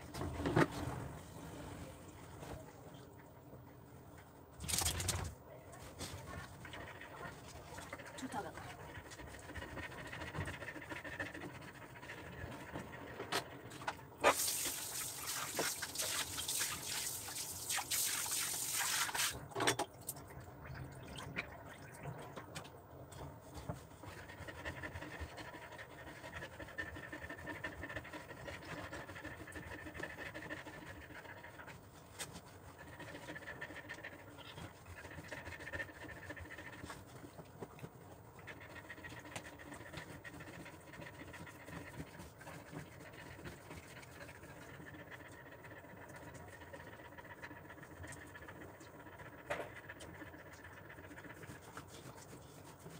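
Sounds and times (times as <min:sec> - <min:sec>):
dog panting: 0:06.0 - 0:13.9, 0:23.3 - 0:52.9.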